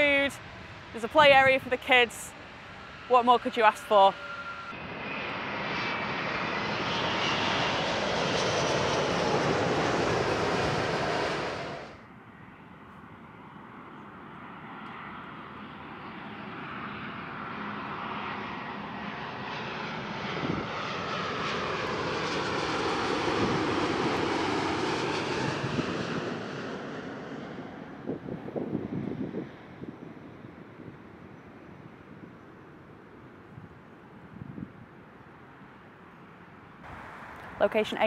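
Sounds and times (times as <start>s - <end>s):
falling jet whine: 0.0s - 12.0s
jet noise: 0.0s - 12.6s, 14.4s - 33.6s
landing jet engines: 0.0s - 38.0s.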